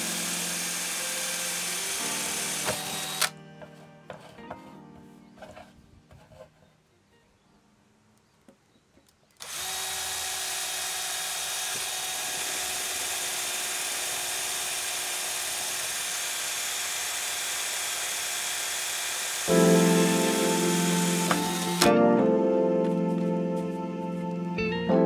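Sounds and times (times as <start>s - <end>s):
power drill cutting plastic: 0.0s - 3.4s, 9.4s - 21.9s
music: 0.0s - 7.9s, 19.5s - 25.0s.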